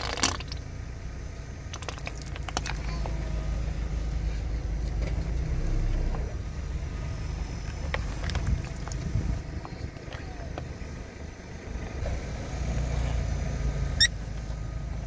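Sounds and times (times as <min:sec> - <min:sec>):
plastic bottle crushed by tyre: 0:00.0 - 0:00.6, 0:01.7 - 0:03.0
steady low rumble: 0:00.0 - 0:15.0.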